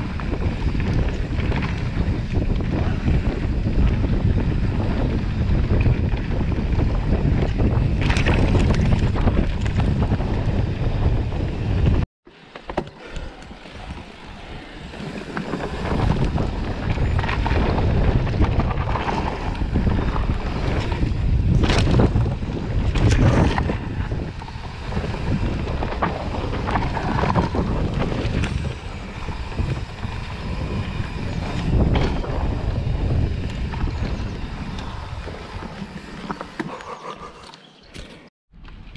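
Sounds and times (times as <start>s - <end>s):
wind buffeting microphone: 0.0s - 12.1s, 13.6s - 37.3s
bike tyre noise on dirt: 0.0s - 38.9s
bike knocks and rattles: 15.3s - 36.8s.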